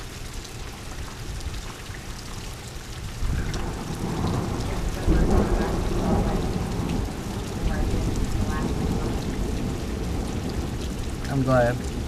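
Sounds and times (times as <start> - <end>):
steady rain: 0.0 - 12.0
thunder rolling: 3.3 - 12.0.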